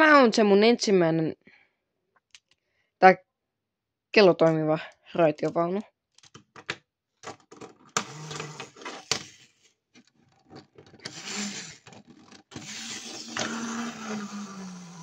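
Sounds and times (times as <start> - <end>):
wind-up spring mechanism whirring: 8.0 - 8.8, 11.0 - 15.0.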